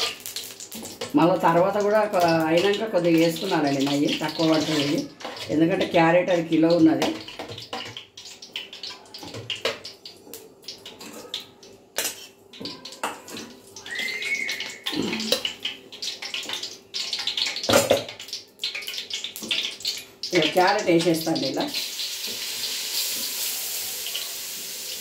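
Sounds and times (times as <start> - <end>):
spoon scraping metal pan: 3.8 - 5.9, 12.0 - 12.4.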